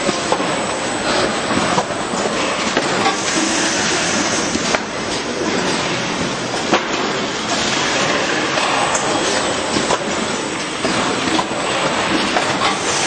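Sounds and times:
conveyor machine clatter: 0:00.0 - 0:13.0.

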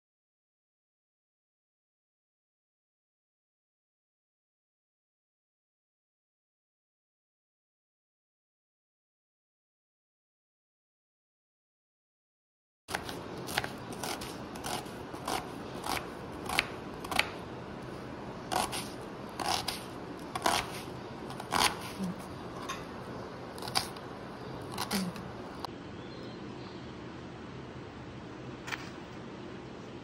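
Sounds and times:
blade cutting food: 0:12.9 - 0:17.5, 0:18.4 - 0:22.8, 0:23.6 - 0:24.0, 0:24.6 - 0:25.3.

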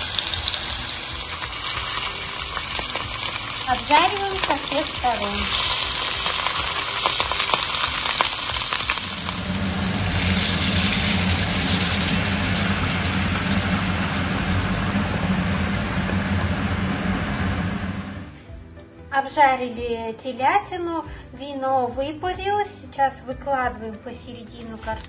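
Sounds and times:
meat sizzling in a frying pan: 0:00.0 - 0:18.0
wine poured into pan: 0:05.5 - 0:16.0.

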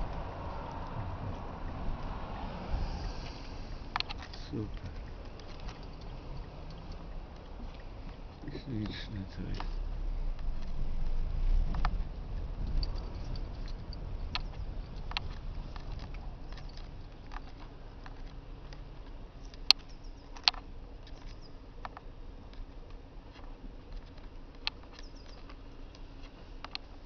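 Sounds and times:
low rumble: 0:00.0 - 0:19.6
faint clicks and taps: 0:12.6 - 0:27.0.

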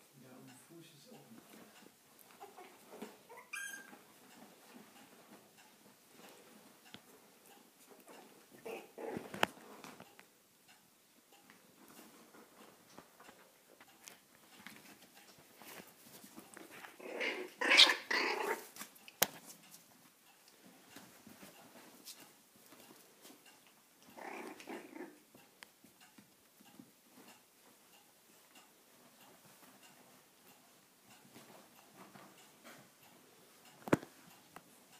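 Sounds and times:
puppies growling: 0:08.0 - 0:09.8, 0:16.6 - 0:18.8, 0:24.0 - 0:25.3.

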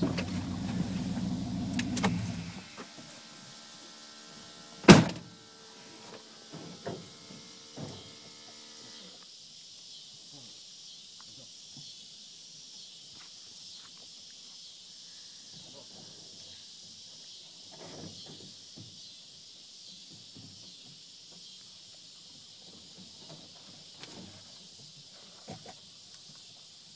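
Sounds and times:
car door slamming: 0:00.0 - 0:02.6, 0:04.8 - 0:05.3
vehicle engine running: 0:00.0 - 0:02.7.

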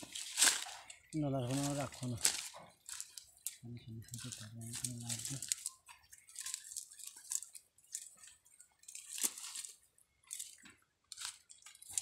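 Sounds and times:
wet net crackling and squelching: 0:00.0 - 0:12.0.

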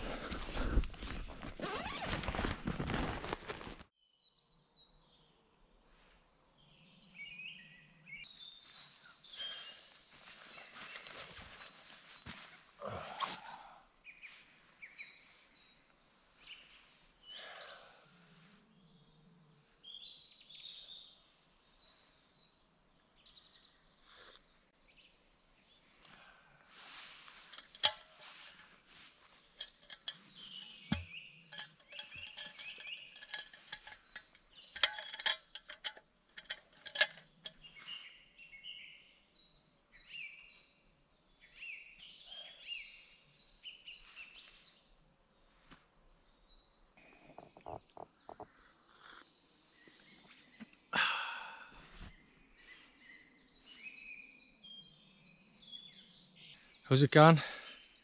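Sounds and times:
small birds singing: 0:00.0 - 0:02.4, 0:04.0 - 0:58.0
thermos cup clinking: 0:29.6 - 0:37.2.

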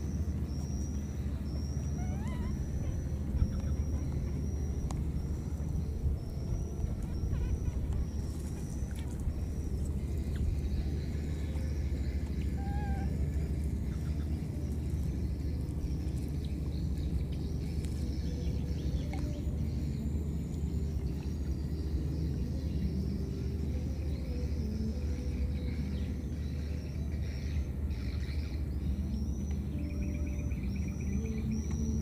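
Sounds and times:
short wavering squeak: 0:00.0 - 0:16.4
faint high chirps: 0:00.0 - 0:32.0
low outdoor rumble: 0:00.0 - 0:32.0.

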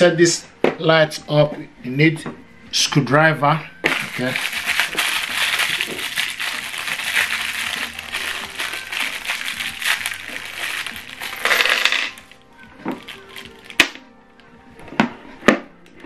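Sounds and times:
plastic bag crinkling: 0:03.8 - 0:14.0
metal screws clinking: 0:04.4 - 0:12.4.

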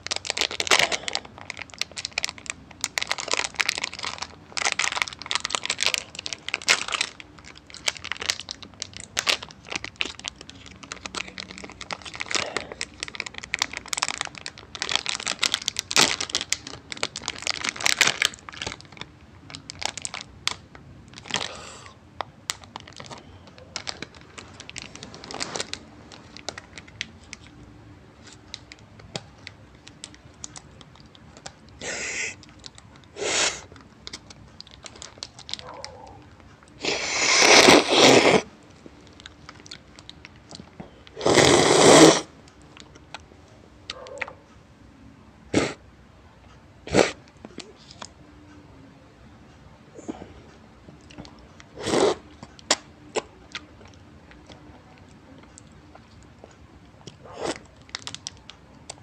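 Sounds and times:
plastic wrapper crinkling and tearing: 0:00.0 - 0:21.8, 0:22.4 - 0:27.6, 0:28.2 - 0:43.2, 0:57.0 - 0:59.0.

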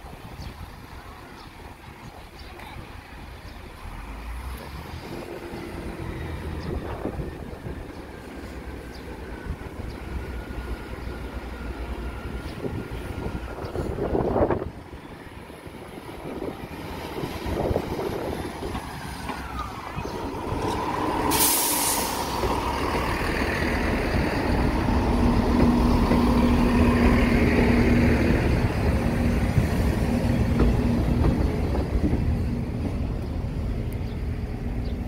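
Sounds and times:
diesel train engine rumble: 0:00.0 - 0:35.0
train wheels on rails: 0:00.0 - 0:35.0
short loud hiss: 0:21.3 - 0:22.3.

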